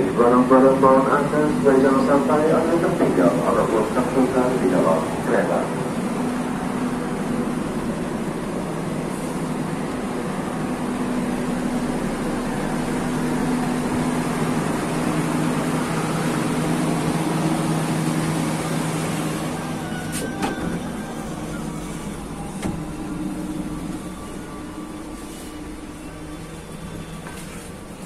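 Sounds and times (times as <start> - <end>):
passenger train rumbling: 0.0 - 28.0.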